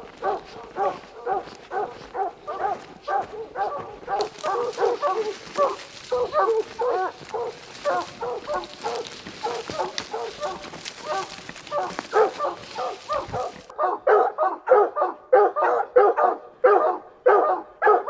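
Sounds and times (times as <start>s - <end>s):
hounds baying: 0.0s - 18.0s
rustle of brush: 4.2s - 13.7s.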